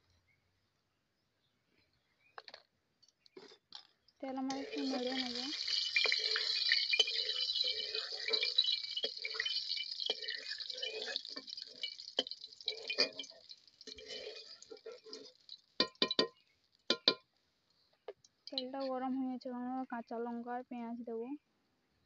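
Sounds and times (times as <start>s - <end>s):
hot oil sizzling: 4.3s - 17.2s
metal spatula scraping pan: 4.5s - 15.5s.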